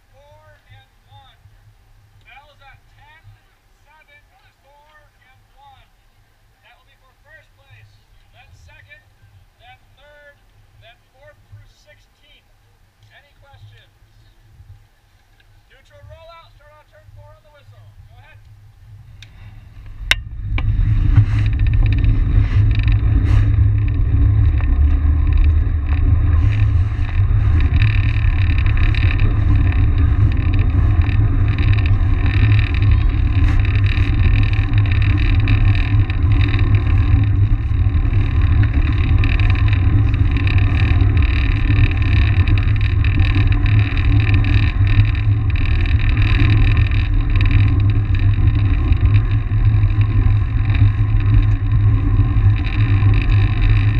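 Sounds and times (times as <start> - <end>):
wind buffeting microphone: 15.9 - 53.9.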